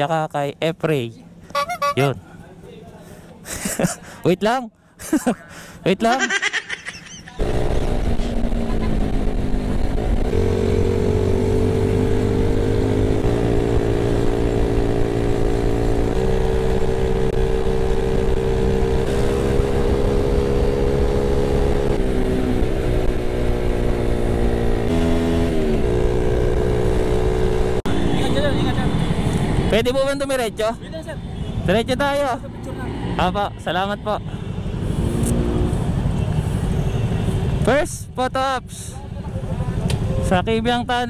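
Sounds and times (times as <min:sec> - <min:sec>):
motorcycle engine running: 0:07.4 - 0:30.4.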